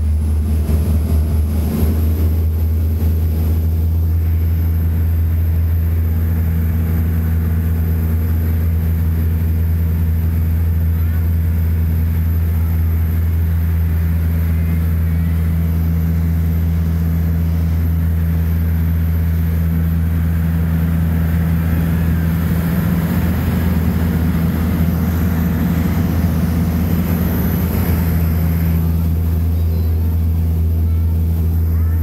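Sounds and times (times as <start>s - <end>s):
boat engine droning: 0.0s - 32.0s
water rushing along hull: 0.0s - 32.0s.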